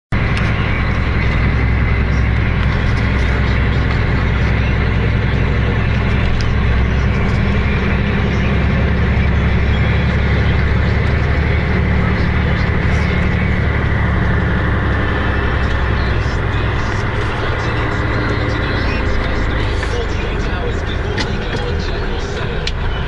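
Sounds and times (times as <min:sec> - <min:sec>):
road noise: 0:00.1 - 0:23.0
vehicle engine drone: 0:00.1 - 0:23.0.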